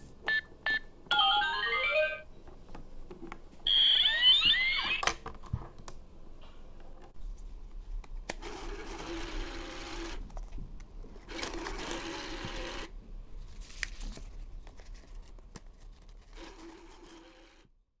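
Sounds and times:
small motorised rollers whirring: 0:16.4 - 0:17.7.

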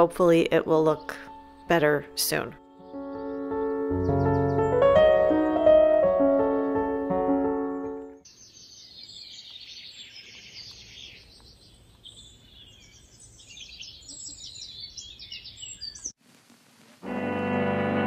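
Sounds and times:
songbirds singing and chirping: 0:00.1 - 0:06.9, 0:07.5 - 0:16.2
piano tune: 0:00.5 - 0:08.2, 0:17.0 - 0:18.0.

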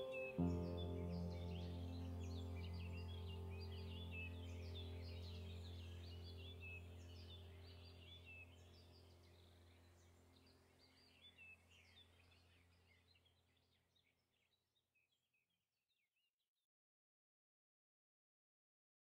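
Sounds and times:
low steady drone: 0:00.0 - 0:10.0
birds chirping: 0:00.0 - 0:13.7.

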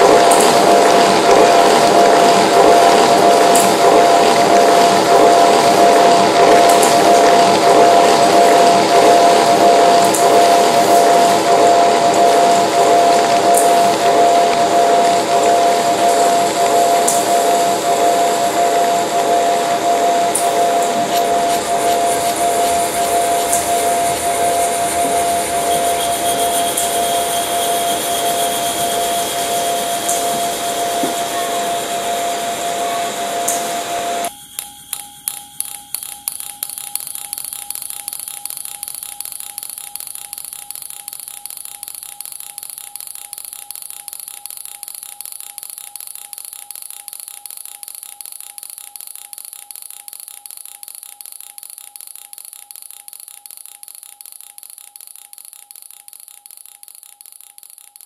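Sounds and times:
quick repeated electronic pulses: 0:00.0 - 0:33.6
steady high tone: 0:00.0 - 0:37.5
noisy electronic drone: 0:00.0 - 0:40.4.

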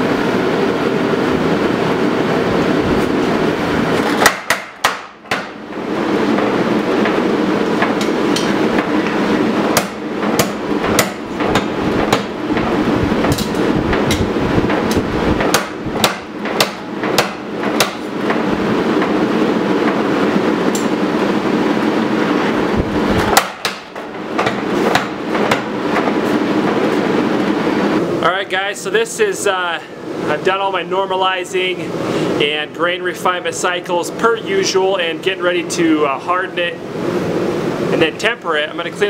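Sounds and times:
power hammer striking hot metal: 0:04.0 - 0:19.2, 0:23.2 - 0:26.9.

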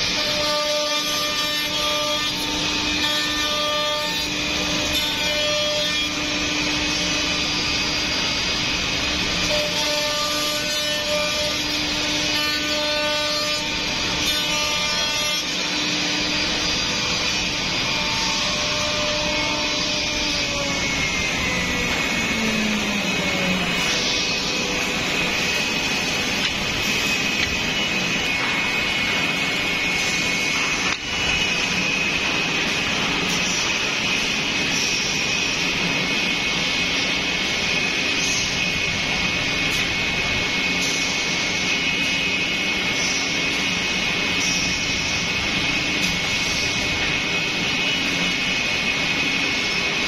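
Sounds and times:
router spindles cutting wood: 0:00.0 - 0:36.8.

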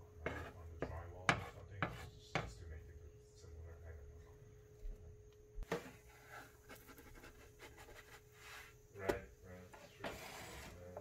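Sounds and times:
spatula scraping a frying pan: 0:00.2 - 0:00.6.

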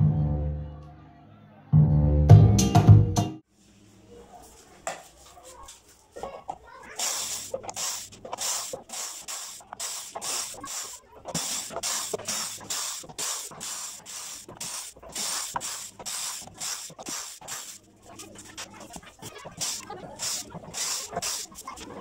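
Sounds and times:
spray hissing in bursts: 0:06.9 - 0:22.0.

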